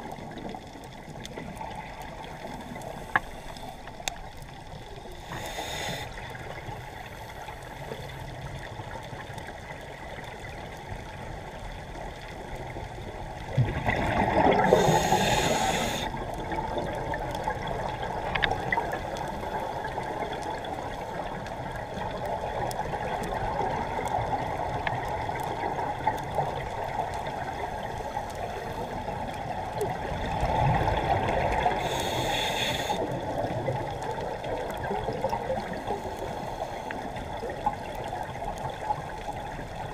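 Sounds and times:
steady underwater hiss: 0:00.0 - 0:39.9
regulator breath hiss: 0:05.2 - 0:08.2, 0:14.6 - 0:16.2, 0:31.8 - 0:33.0
exhaled bubbles rushing: 0:13.4 - 0:15.2, 0:29.8 - 0:31.8.

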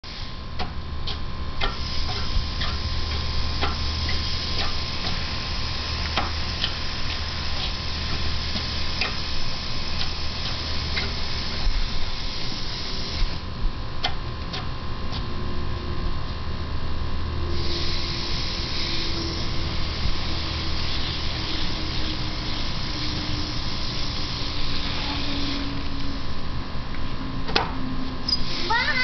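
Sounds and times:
sprinkler spraying water: 0:01.1 - 0:13.4, 0:17.6 - 0:25.7.

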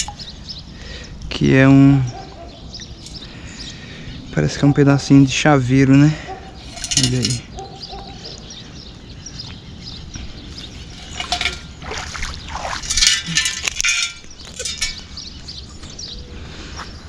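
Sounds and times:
feet wading through shallow water: 0:11.0 - 0:13.5.

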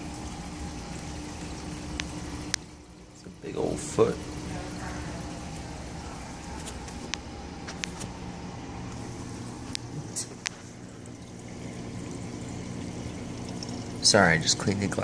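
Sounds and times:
circulating water: 0:00.0 - 0:15.0
low steady hum: 0:00.0 - 0:15.0.

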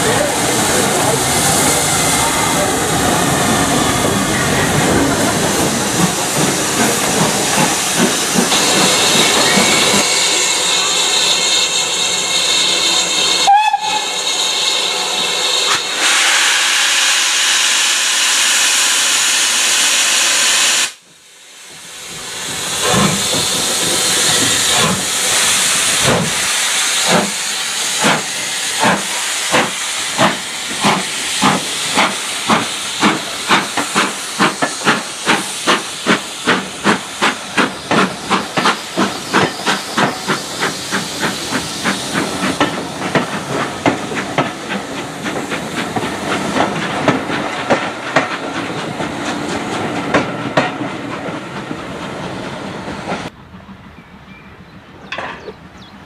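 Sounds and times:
steam hissing: 0:00.0 - 0:53.3
steam locomotive whistle: 0:09.1 - 0:21.0.

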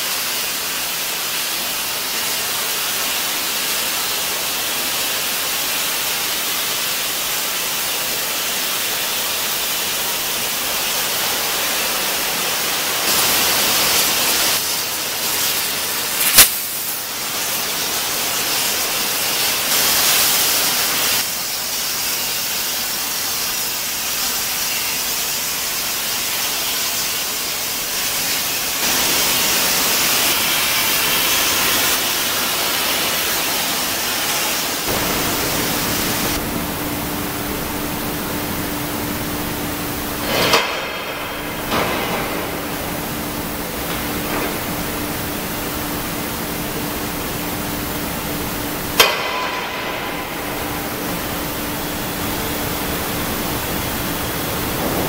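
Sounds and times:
steelworks machinery hiss and rush: 0:00.0 - 0:55.0
sharp crack: 0:16.1 - 0:17.0.

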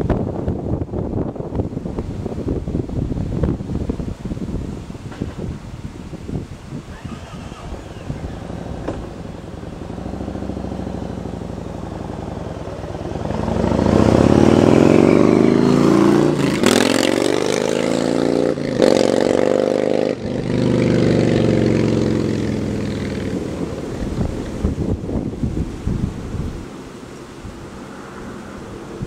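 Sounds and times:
motorcycle accelerating: 0:06.8 - 0:26.6.

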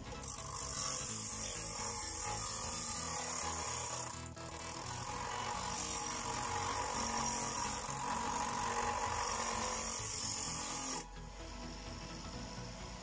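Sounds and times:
bench grinder grinding steel: 0:00.0 - 0:13.0.

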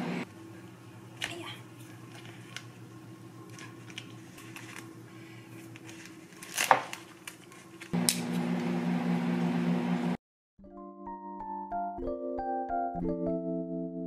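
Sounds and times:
steady hum with hiss: 0:00.0 - 0:10.2
loud plastic crinkle: 0:01.2 - 0:02.8, 0:03.4 - 0:08.0
plastic film peeling: 0:01.2 - 0:08.2.

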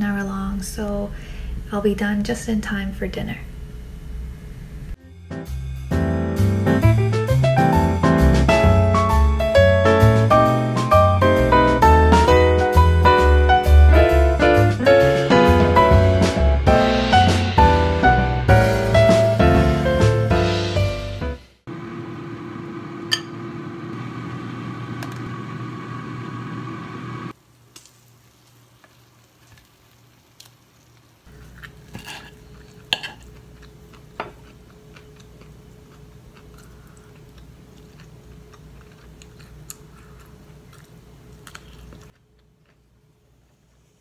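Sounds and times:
low hum: 0:00.2 - 0:05.0.

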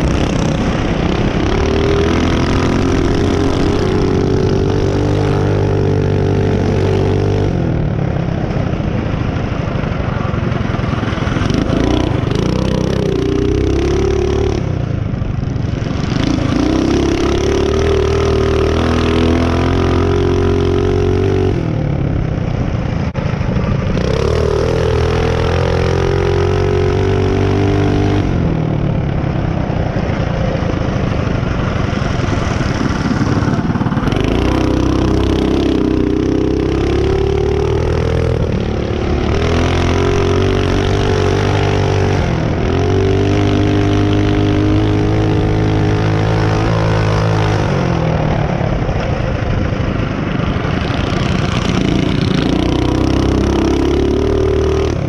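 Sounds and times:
small engine revving: 0:00.0 - 0:07.8, 0:11.1 - 0:14.8, 0:15.7 - 0:22.1, 0:32.0 - 0:48.9, 0:50.6 - 0:55.0.

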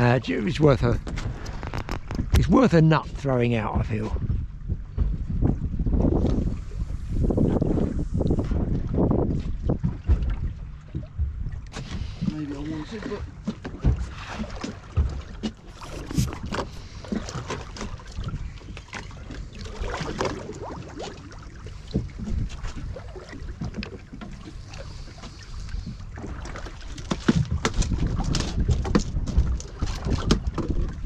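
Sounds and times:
water lapping against boat hull: 0:00.0 - 0:31.0
wind buffeting microphone: 0:00.0 - 0:31.0
knocks and rustles: 0:13.2 - 0:16.8.

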